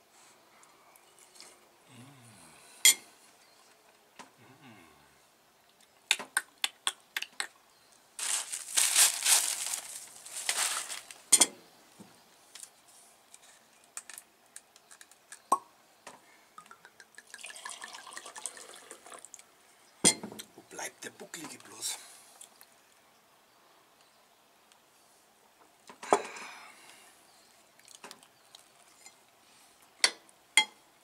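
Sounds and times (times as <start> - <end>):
rustling: 8.2 - 11.3
wine pouring into a glass: 16.6 - 19.4.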